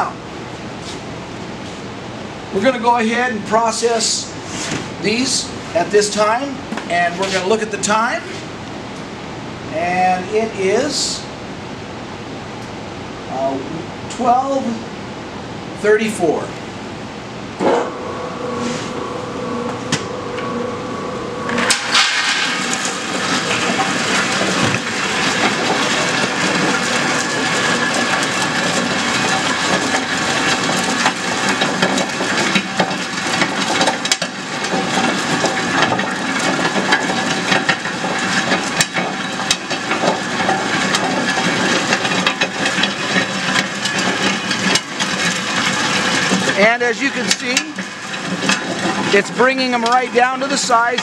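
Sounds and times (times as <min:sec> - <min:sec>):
motor humming: 0:17.4 - 0:32.4
nuts rattling and grinding: 0:21.6 - 0:51.0.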